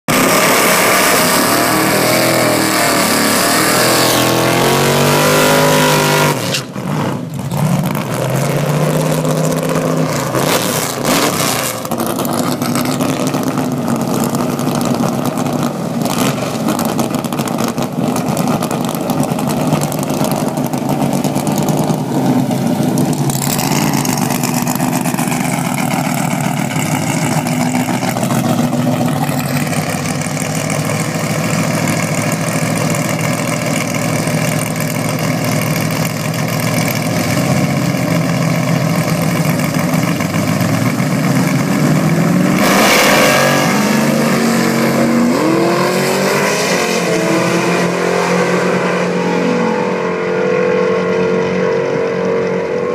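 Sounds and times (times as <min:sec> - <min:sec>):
engine at high revs: 0:00.0 - 0:52.9
car idling loudly: 0:11.6 - 0:48.0.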